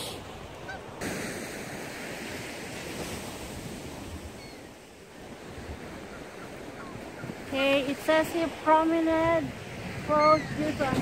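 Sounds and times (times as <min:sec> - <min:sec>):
waves breaking against seawall: 0:00.0 - 0:11.0
wind buffeting microphone: 0:00.0 - 0:11.0.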